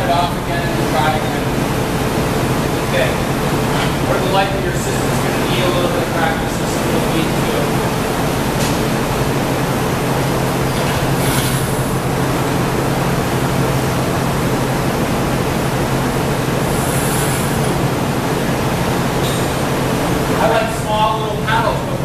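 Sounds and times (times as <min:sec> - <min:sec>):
gas furnaces running: 0:00.0 - 0:22.0
short hisses: 0:16.7 - 0:17.8.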